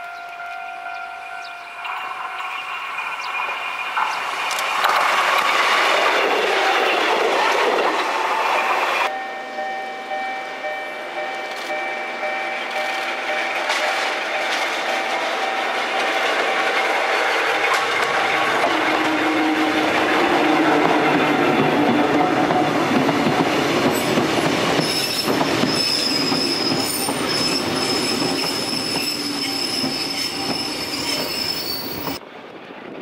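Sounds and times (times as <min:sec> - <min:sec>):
electric train passing: 0:00.0 - 0:33.0
train whine: 0:00.0 - 0:33.0
low train growl: 0:13.0 - 0:24.8.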